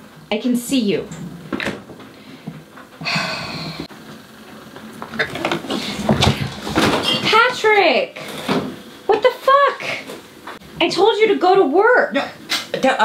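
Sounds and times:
refrigerator shelves clattering: 5.1s - 8.8s.

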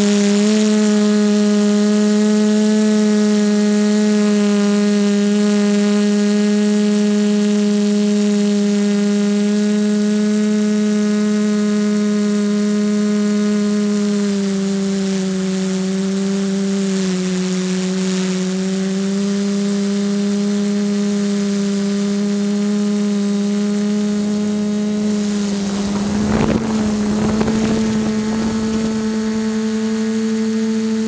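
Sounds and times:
drone motors buzzing: 25.0s - 30.7s.

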